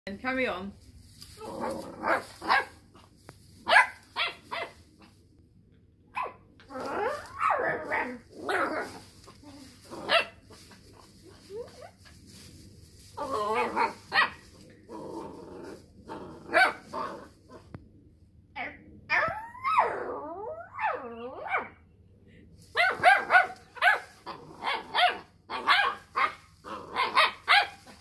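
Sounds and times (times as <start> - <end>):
puppy barking and yowling: 3.6 - 4.8, 6.1 - 9.0, 10.0 - 10.4, 13.2 - 14.4, 16.5 - 17.1, 18.6 - 21.8, 22.7 - 28.0.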